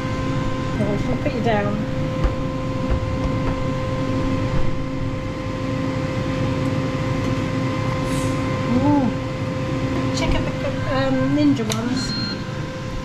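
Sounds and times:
air fryer fan humming: 0.0s - 13.0s.

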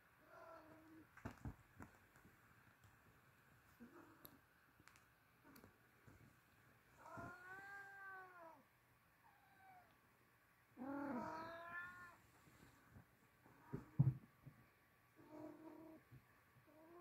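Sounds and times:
cat wailing meows: 10.8s - 12.2s.

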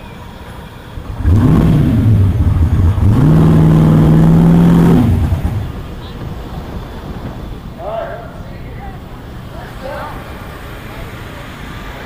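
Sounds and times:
car engine revving: 1.0s - 6.0s.

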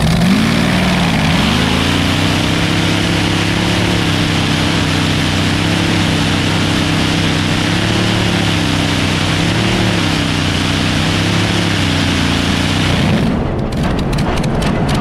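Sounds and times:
aircraft engine droning under load: 0.0s - 15.0s
engine pops: 12.7s - 15.0s.

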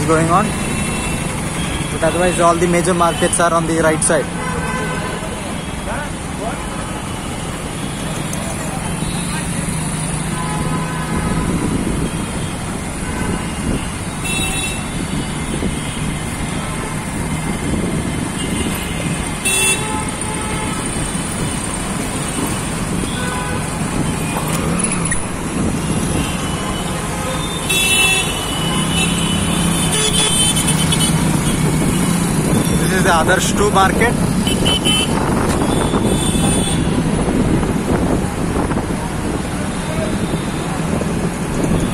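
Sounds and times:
auto rickshaw engine: 0.0s - 41.9s
busy city traffic: 0.0s - 41.9s
vehicle horn toots: 18.4s - 20.9s, 27.4s - 31.1s, 34.4s - 36.9s.

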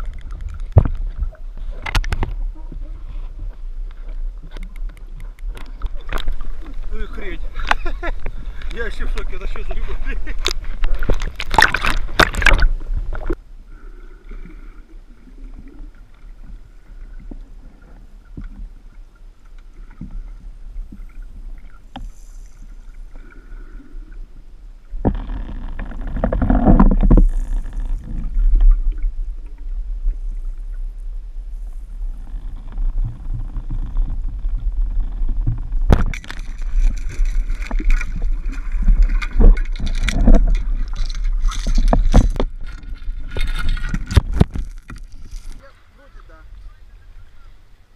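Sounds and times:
water sloshing and splashing: 0.0s - 13.4s, 24.9s - 46.6s
muffled underwater water noise: 0.0s - 47.9s
water churning and bubbling: 0.0s - 47.9s.

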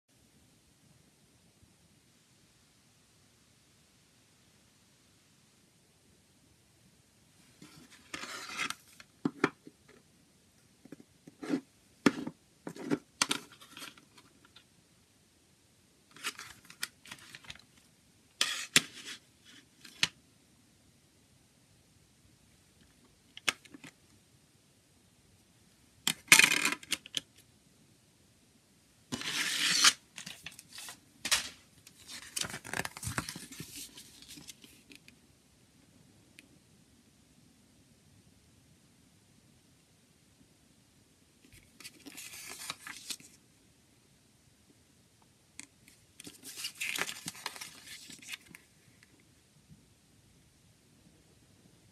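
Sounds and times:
paper rustling: 29.1s - 34.9s, 41.6s - 43.4s, 46.2s - 48.7s.

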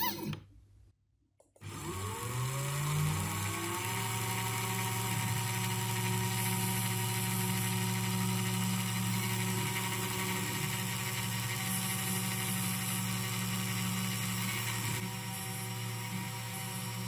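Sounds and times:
spindle motor drilling circuit board: 1.6s - 17.0s.

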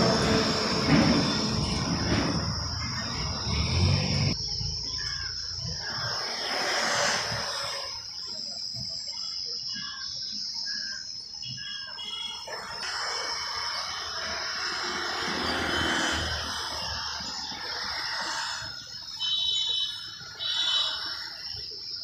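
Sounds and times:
loud rushing rumble: 0.0s - 4.4s
birds chirping: 0.0s - 22.0s
high insect-like drone: 0.0s - 22.0s.

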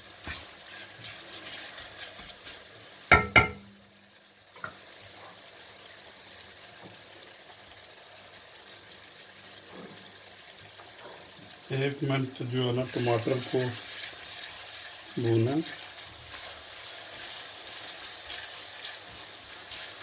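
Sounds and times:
wooden spatula stirring: 0.0s - 3.5s, 12.8s - 20.0s
onions sizzling in oil: 0.0s - 20.0s
sharp knocks: 3.1s - 3.6s.

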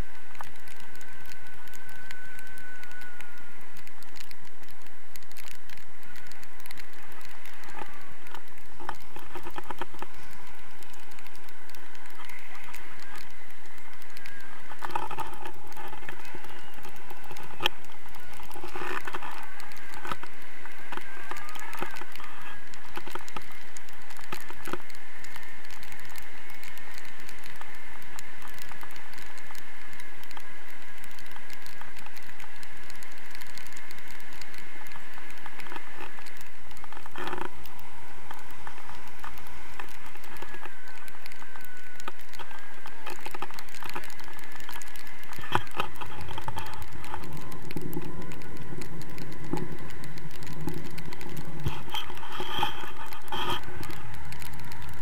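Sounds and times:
faint wavering whistle: 0.0s - 33.2s, 34.3s - 55.0s
wind rushing over microphone: 0.0s - 55.0s.

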